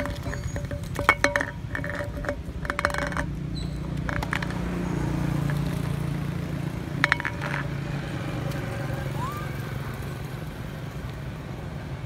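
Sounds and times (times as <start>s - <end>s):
can scraping on gravel: 0.0s - 5.9s, 7.0s - 7.7s.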